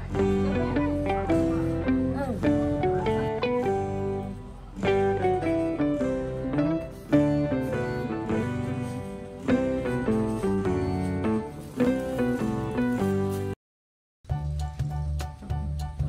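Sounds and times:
plucked string melody: 0.0s - 13.6s.

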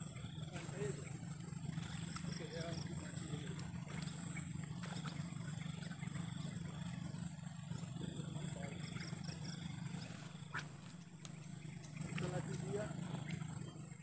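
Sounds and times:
steady low drone: 0.0s - 14.0s
faint clicks: 10.0s - 13.4s.

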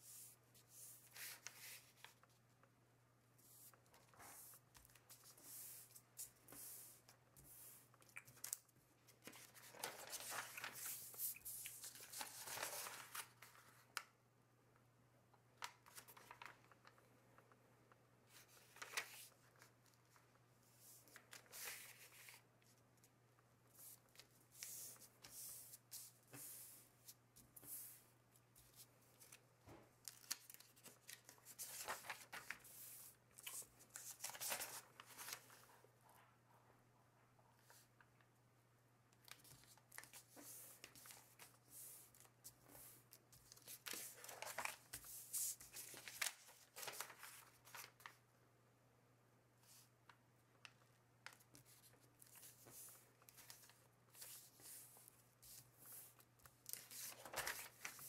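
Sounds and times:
paper rustling and sliding: 0.8s - 2.3s, 9.1s - 13.8s, 30.1s - 35.7s, 39.5s - 48.1s, 51.5s - 58.0s.

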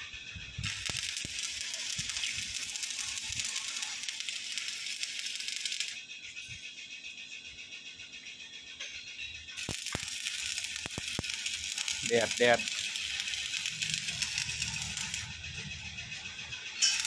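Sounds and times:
welding arc crackling: 0.6s - 6.0s, 9.6s - 15.6s, 16.7s - 17.0s.

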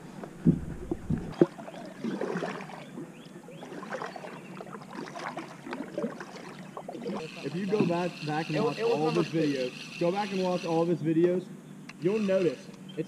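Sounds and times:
water lapping against kayak hull: 0.0s - 10.8s
light knocks and creaks: 0.2s - 1.5s.

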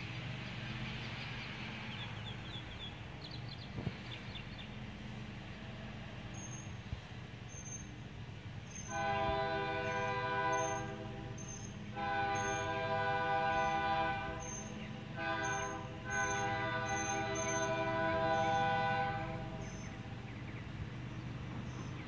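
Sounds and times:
locomotive air horn blasts: 8.8s - 20.1s.

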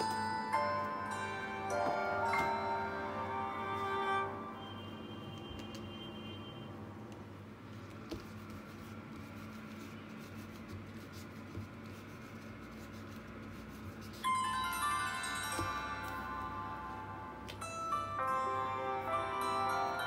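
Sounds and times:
bright high notes: 0.0s - 6.6s, 14.2s - 20.0s
quiet background music: 0.0s - 20.0s.

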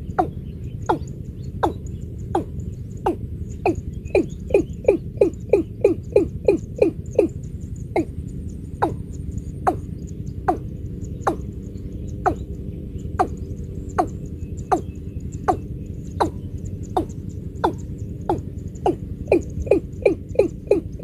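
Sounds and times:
bird calling falling notes: 0.0s - 7.4s, 13.2s - 21.0s
low rumble: 0.0s - 21.0s.

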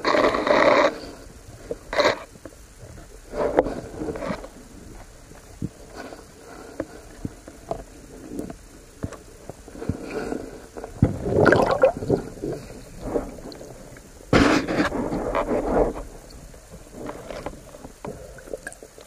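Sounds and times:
gurgling rush of water: 11.0s - 14.3s.

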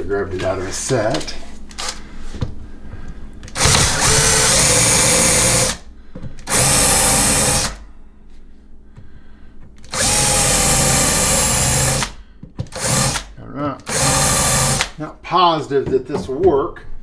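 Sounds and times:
cordless drill driving screws: 3.5s - 5.8s, 6.4s - 7.8s, 9.8s - 15.0s.

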